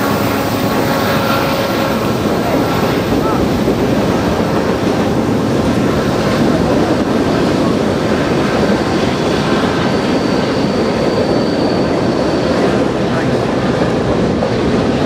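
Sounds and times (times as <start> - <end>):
freight train wheels rumbling: 0.0 - 15.0
high wheel squeal: 8.7 - 13.0.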